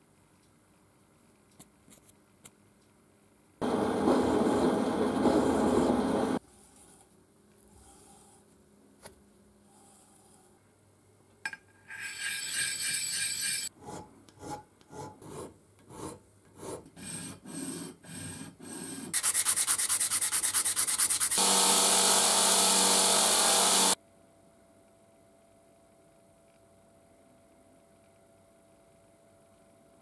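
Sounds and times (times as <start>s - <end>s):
file scraping steel nut: 11.9s - 21.4s.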